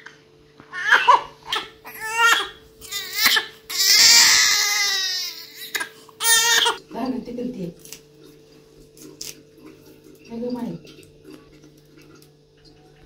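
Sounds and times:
newborn baby crying: 0.7s - 6.8s.

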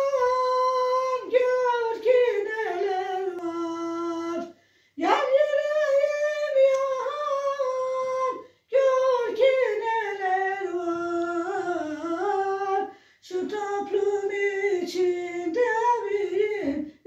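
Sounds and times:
woman singing unaccompanied: 0.0s - 17.0s
woman breathing: 4.5s - 5.0s, 12.9s - 13.2s.

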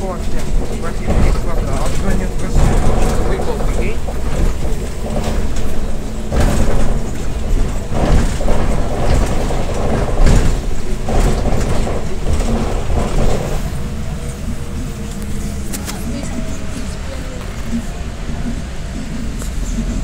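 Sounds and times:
body and door rattles: 0.0s - 14.6s
bus engine and road rumble: 0.0s - 20.0s.

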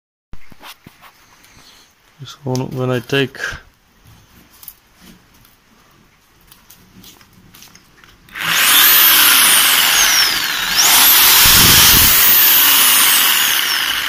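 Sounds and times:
jigsaw running with no load: 8.3s - 14.0s.

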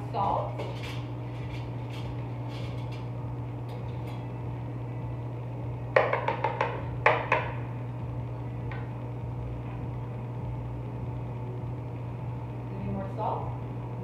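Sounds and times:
steady low hum: 0.0s - 14.0s
utensils knocking on wooden bowl: 6.0s - 7.6s.

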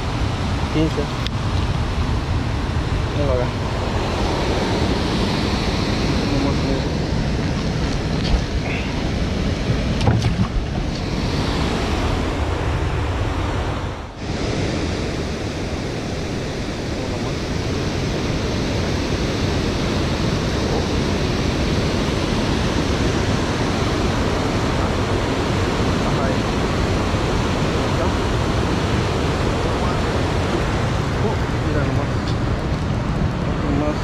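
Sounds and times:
wind on microphone: 0.0s - 34.0s
water rushing through dam gates: 10.9s - 34.0s.

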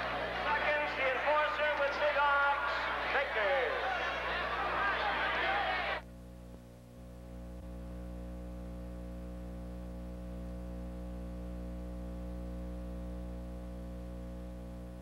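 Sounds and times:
steady low hum: 6.0s - 15.0s.

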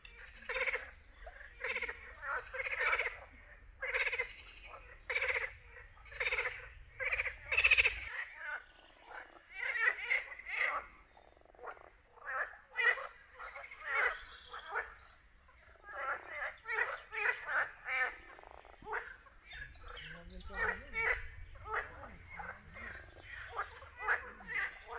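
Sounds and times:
frogs croaking in chorus: 0.0s - 24.9s.

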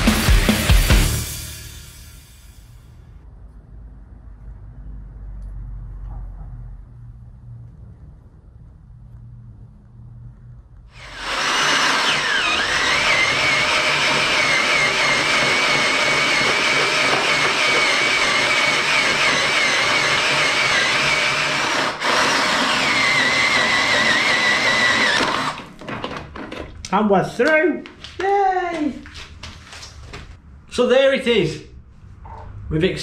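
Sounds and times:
cordless drill boring through steel: 10.9s - 25.6s.

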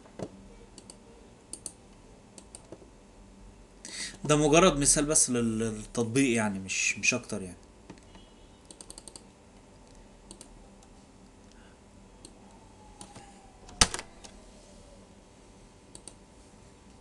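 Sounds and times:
keyboard and mouse clicks: 0.8s - 1.8s, 2.4s - 2.8s, 7.9s - 10.9s, 13.0s - 14.4s, 15.9s - 16.2s.

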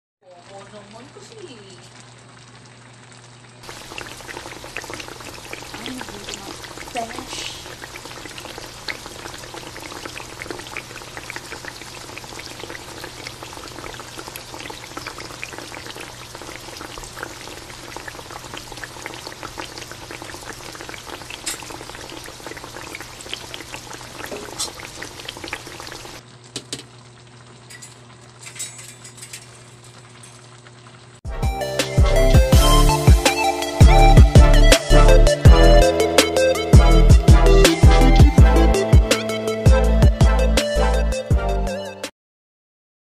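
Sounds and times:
stew boiling and bubbling: 0.2s - 31.3s.

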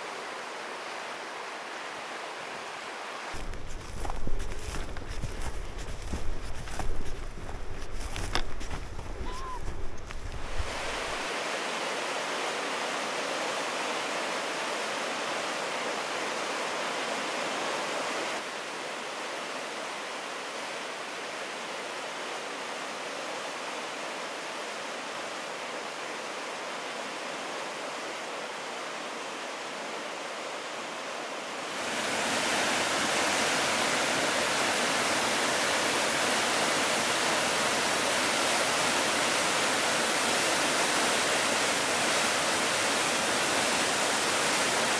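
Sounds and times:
flowing water rushing: 0.0s - 44.9s
waterfall rushing: 8.6s - 21.7s, 23.2s - 44.9s.

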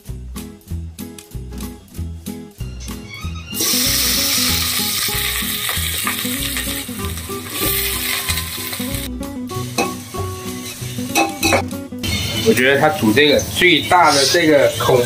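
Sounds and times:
background music: 0.0s - 15.0s
vegetables sizzling in hot oil: 3.6s - 12.6s.

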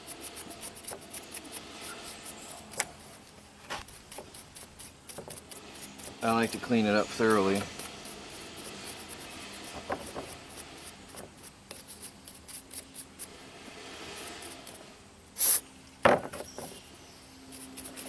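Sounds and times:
bristle brush scrubbing: 0.0s - 15.6s, 17.5s - 18.0s
brief loud hiss: 13.6s - 15.7s.

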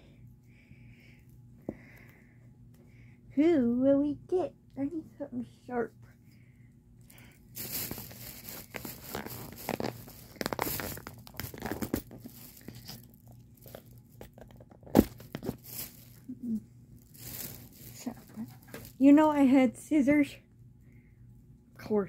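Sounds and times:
packaging torn and crinkled: 7.6s - 16.3s, 17.1s - 19.1s.

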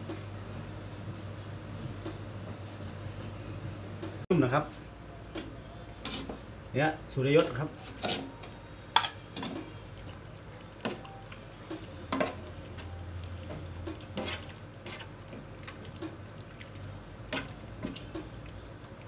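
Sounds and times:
liquid sloshing: 9.4s - 19.0s.

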